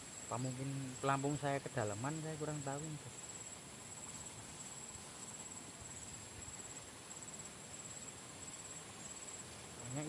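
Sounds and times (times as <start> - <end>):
insect chorus whine: 0.0 - 10.0
low background hiss: 0.0 - 10.0.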